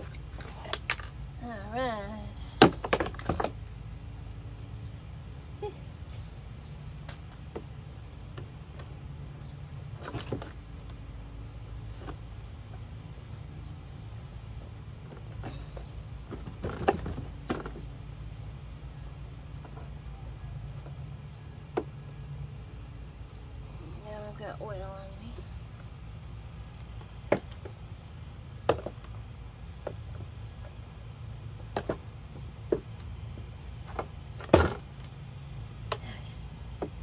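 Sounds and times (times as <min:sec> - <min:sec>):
insects droning: 0:00.0 - 0:37.0
knocks on hollow plastic: 0:28.7 - 0:29.1.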